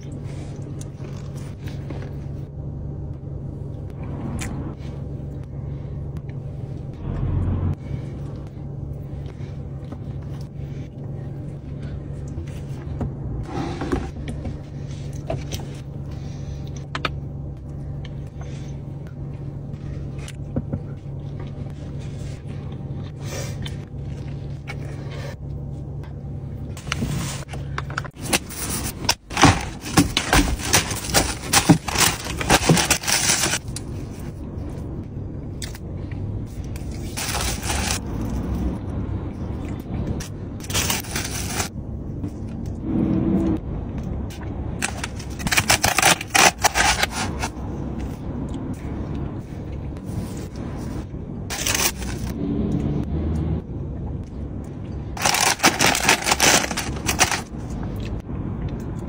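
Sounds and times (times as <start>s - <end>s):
food being handled: 28.2s - 34.2s, 36.8s - 38.0s, 55.2s - 57.5s
paper food wrapping crackling: 28.2s - 34.3s, 36.8s - 38.5s, 40.6s - 41.7s, 44.8s - 47.6s, 51.5s - 52.3s, 55.2s - 57.6s.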